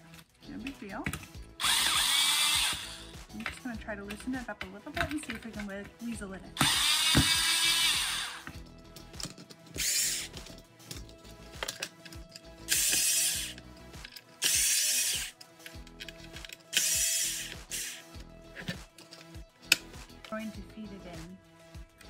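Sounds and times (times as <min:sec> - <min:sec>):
cordless drill running in bursts: 0:01.6 - 0:03.1, 0:06.6 - 0:08.4, 0:12.7 - 0:13.5, 0:14.5 - 0:15.3, 0:16.8 - 0:18.0.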